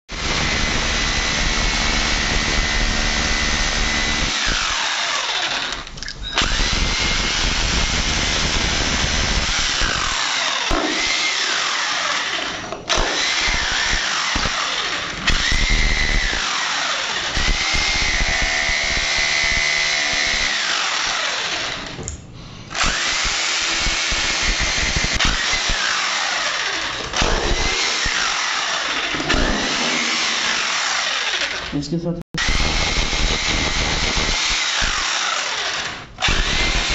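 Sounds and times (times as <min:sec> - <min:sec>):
electric drill whining: 0:00.1 - 0:22.0, 0:22.7 - 0:31.7, 0:32.4 - 0:36.9.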